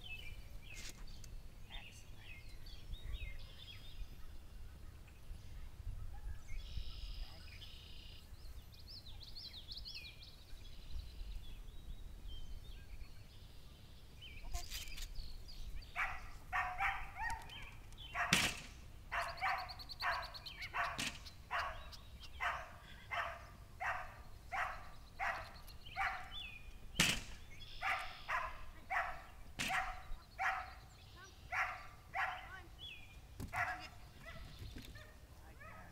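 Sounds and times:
faint bird chirps: 0:00.0 - 0:18.3
wind rumble on microphone: 0:05.3 - 0:07.5
dog barking: 0:16.0 - 0:17.5, 0:18.2 - 0:18.4, 0:19.1 - 0:26.4, 0:27.8 - 0:30.8, 0:31.5 - 0:32.6, 0:33.5 - 0:35.9
sharp knocks: 0:18.3 - 0:18.8, 0:27.0 - 0:27.4.

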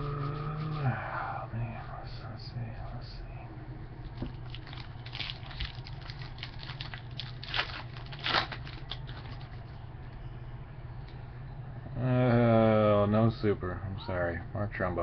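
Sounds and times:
low steady hum: 0:00.0 - 0:15.0
wrapper tearing and crinkling: 0:04.2 - 0:09.7.

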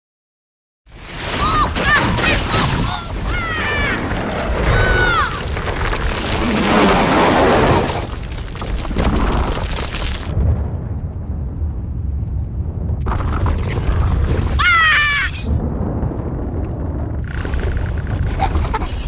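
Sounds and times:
deep rumbling boom: 0:08.9 - 0:18.8.

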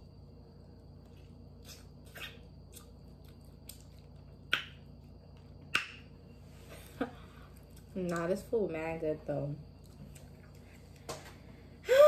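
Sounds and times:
person chewing with mouth smacks: 0:01.0 - 0:06.0.

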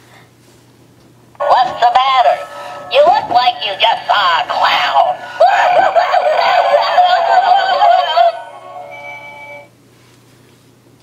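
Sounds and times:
wavering synthetic voice: 0:01.4 - 0:08.8
electronic toy music: 0:04.5 - 0:09.7.

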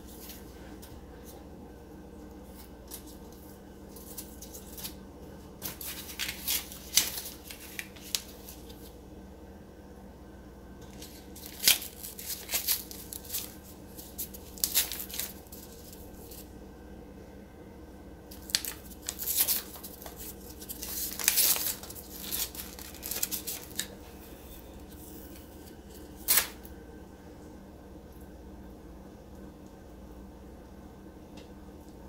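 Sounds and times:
steady low hum: 0:00.0 - 0:32.0
dough tearing and rustling: 0:02.3 - 0:09.0, 0:10.8 - 0:16.5, 0:18.3 - 0:26.7.

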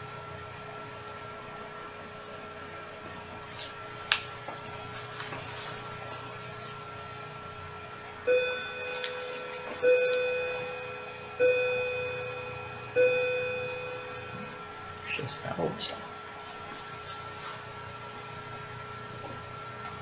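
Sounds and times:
faint high whine: 0:06.0 - 0:17.3.

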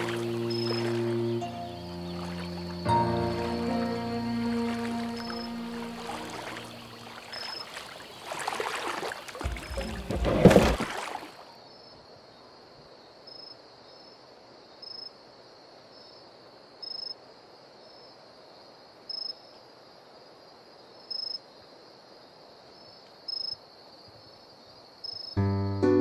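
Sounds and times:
short loud insect chirp: 0:00.0 - 0:09.6
cricket trill: 0:00.0 - 0:12.0, 0:20.9 - 0:21.7.

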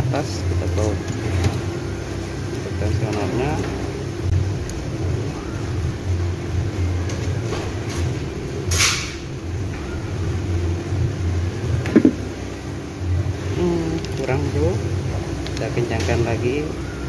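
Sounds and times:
low hum: 0:00.0 - 0:17.0
metal scrape: 0:07.5 - 0:09.5.

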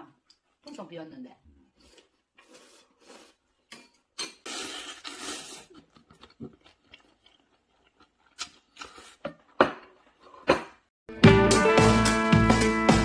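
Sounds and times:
person slurping noodles: 0:01.8 - 0:03.6, 0:04.4 - 0:07.9.

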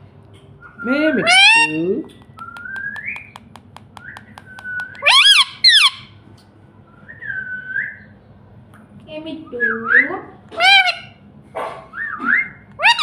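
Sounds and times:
parakeet whistling: 0:00.6 - 0:06.2
parakeet squawks: 0:01.2 - 0:02.0, 0:04.6 - 0:06.2, 0:10.5 - 0:11.2, 0:12.0 - 0:13.0
beak tapping on screen: 0:02.0 - 0:05.5.

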